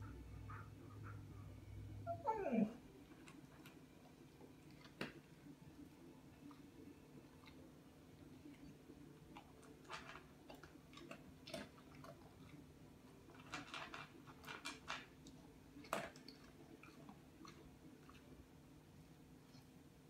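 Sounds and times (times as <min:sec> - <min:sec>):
low steady hum: 0:00.0 - 0:20.0
animal chewing food: 0:03.1 - 0:18.5.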